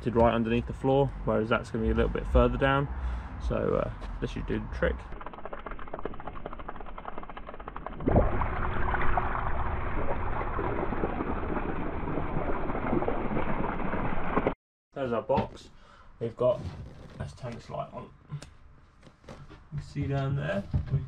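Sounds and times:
water gushing from pump hose: 4.5s - 14.6s.

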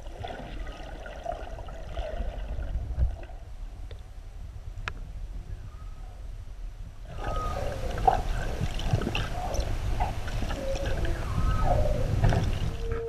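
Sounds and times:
underwater rumble of moving water: 0.0s - 13.0s
underwater squeaks chirps and clicks: 7.2s - 13.0s.

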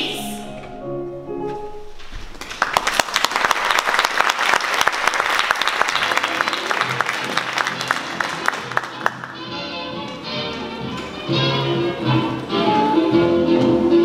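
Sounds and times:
audience applauding: 2.3s - 9.5s.

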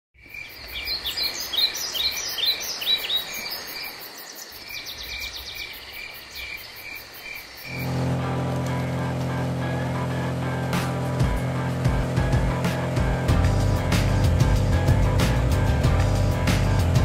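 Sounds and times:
birds calling: 0.2s - 8.1s
insects trilling: 0.2s - 10.0s.

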